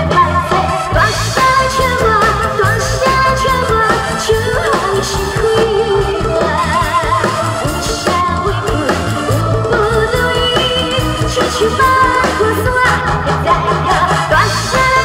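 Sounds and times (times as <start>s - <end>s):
amplified backing music: 0.0s - 15.0s
woman singing a pop song: 0.0s - 15.0s.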